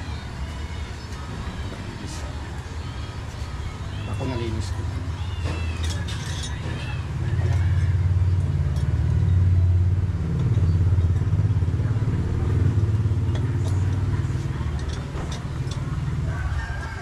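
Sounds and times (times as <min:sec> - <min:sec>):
motorcycle engine running: 0:06.8 - 0:16.3.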